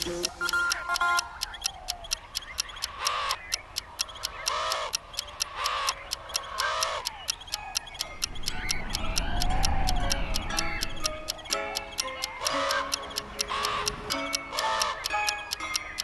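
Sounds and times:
clock ticking: 0:00.0 - 0:16.0
crow cawing: 0:02.9 - 0:03.5, 0:04.3 - 0:07.1, 0:12.5 - 0:15.1.

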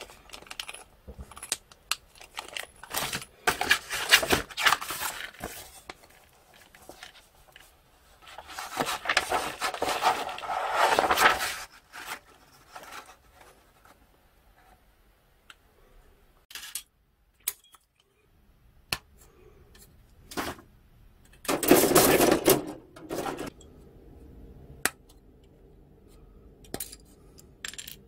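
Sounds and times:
paper sheet rustling: 0:02.2 - 0:14.0.

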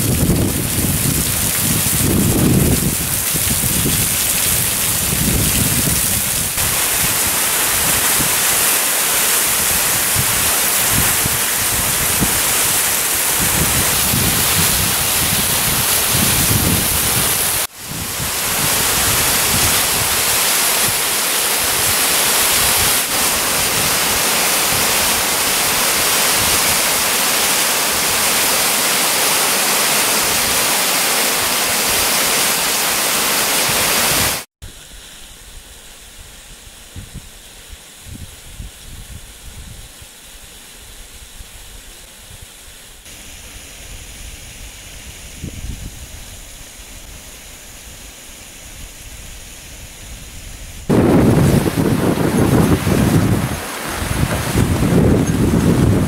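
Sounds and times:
waterfall rushing over rocks: 0:00.0 - 0:35.4, 0:50.8 - 0:56.0.

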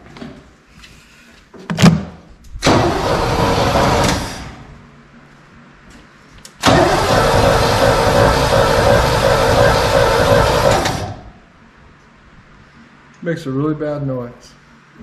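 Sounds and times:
starter motor cranking: 0:02.6 - 0:04.7, 0:06.6 - 0:11.4.

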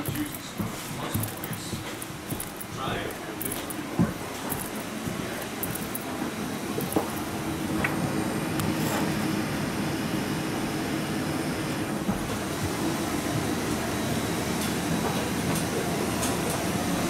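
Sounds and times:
aircraft air systems drone: 0:00.0 - 0:17.0.

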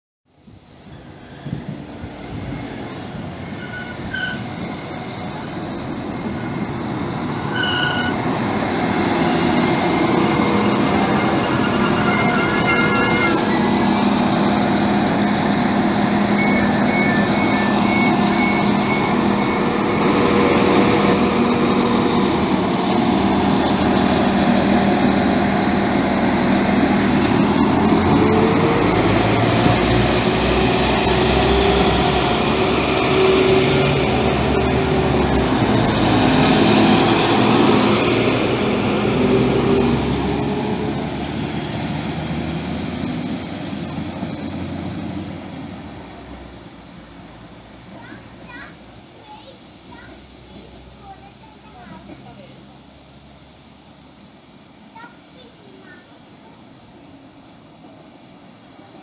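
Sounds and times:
diesel train engines running: 0:00.3 - 0:59.0
short high beeps: 0:16.4 - 0:19.7.

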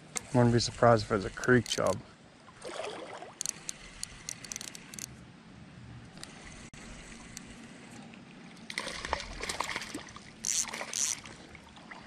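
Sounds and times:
creek water running: 0:00.0 - 0:05.0, 0:06.2 - 0:12.0
fishing reel clicks: 0:01.3 - 0:02.0, 0:03.4 - 0:05.1, 0:10.4 - 0:11.3.

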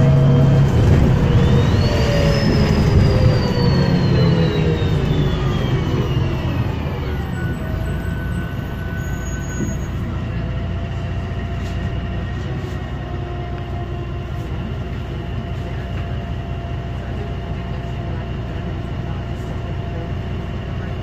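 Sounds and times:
gearbox whine: 0:00.0 - 0:10.0
bus engine rumbling: 0:00.0 - 0:21.0.

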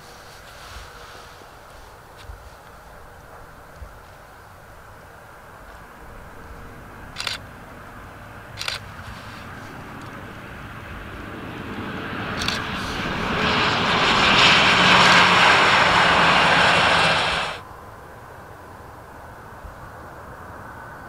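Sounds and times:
jet engine rush and whine: 0:05.7 - 0:17.7
sharp clicks: 0:07.2 - 0:07.4, 0:08.6 - 0:09.1, 0:12.4 - 0:12.7.

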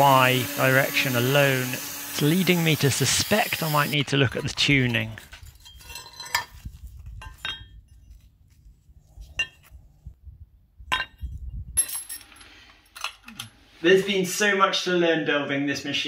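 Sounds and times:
metal parts clinking: 0:04.3 - 0:07.8, 0:11.8 - 0:13.6.

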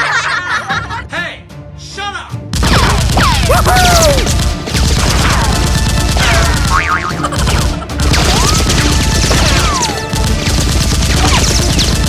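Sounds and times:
background music: 0:00.0 - 0:12.0
gunfire bursts: 0:02.5 - 0:12.0.

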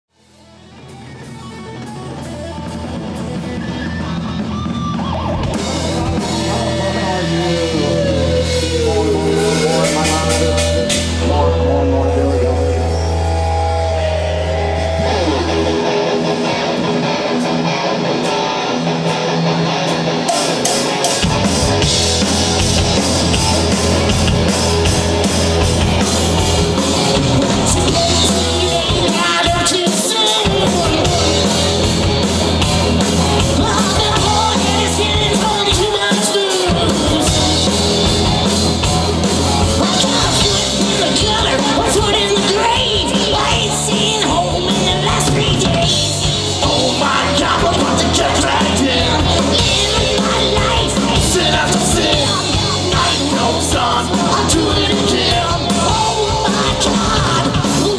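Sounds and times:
electric guitars and bass: 0:00.1 - 0:57.9
hard rock band playing: 0:00.1 - 0:57.9
drum kit and cymbals: 0:00.2 - 0:11.6, 0:19.8 - 0:57.9.

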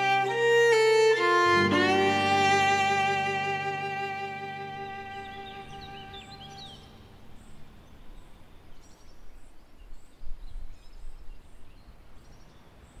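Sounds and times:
faint bird chirps: 0:04.6 - 0:13.0.

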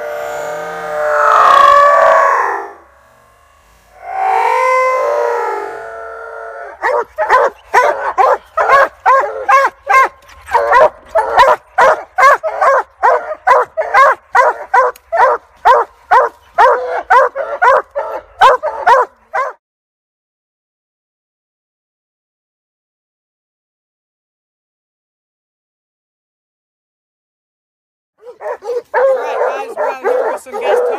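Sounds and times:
dog howling: 0:04.0 - 0:19.6, 0:28.2 - 0:30.9
dog chop barking: 0:06.8 - 0:19.6, 0:28.2 - 0:30.9.

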